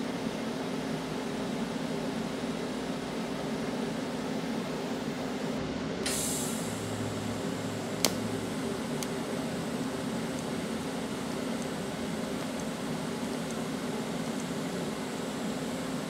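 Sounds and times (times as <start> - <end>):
welding machine hum and hiss: 0.0 - 16.0
short burst of hiss: 6.1 - 6.7.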